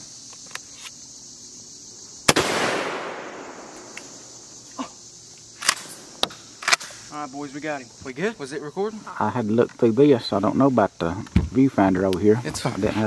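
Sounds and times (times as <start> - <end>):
shotgun shot with rolling echo: 2.3 - 4.2.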